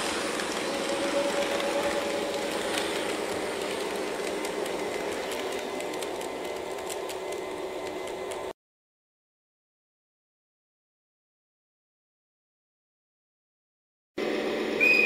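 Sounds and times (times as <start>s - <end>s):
model train rolling on track: 0.0s - 8.5s
wheels ticking over rail joints: 0.0s - 8.5s.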